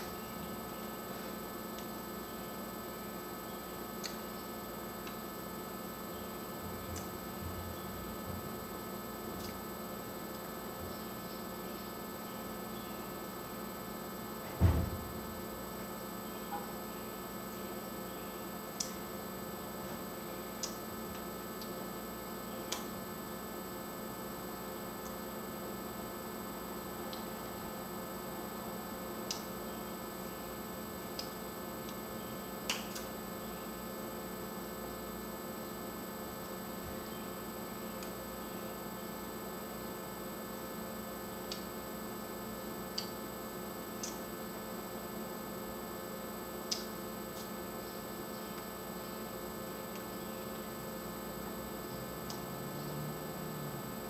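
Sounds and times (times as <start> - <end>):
electrical mains hum: 0.0 - 54.0
faint sharp clicks: 46.7 - 47.5.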